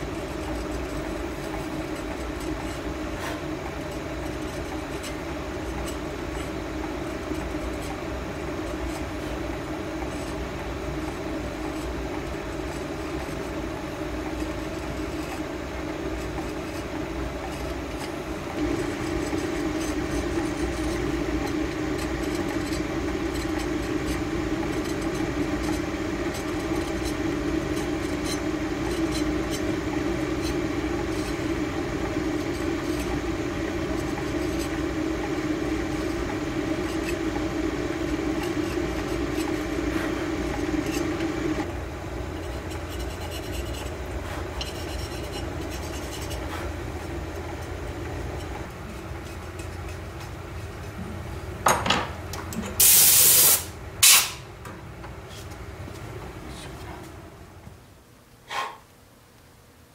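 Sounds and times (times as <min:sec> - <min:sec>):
steady mechanical hum: 0:00.0 - 0:59.9
metal tool scratching porcelain: 0:42.4 - 0:51.0.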